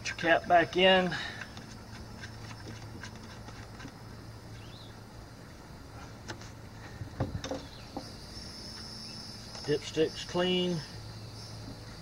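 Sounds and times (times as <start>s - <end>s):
low steady hum: 0.0s - 12.0s
handling clicks and knocks: 7.1s - 8.1s.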